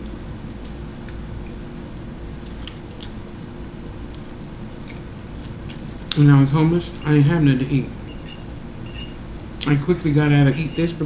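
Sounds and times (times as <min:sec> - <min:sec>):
steady low hum: 0:00.0 - 0:11.0
person chewing noodles: 0:02.4 - 0:06.0.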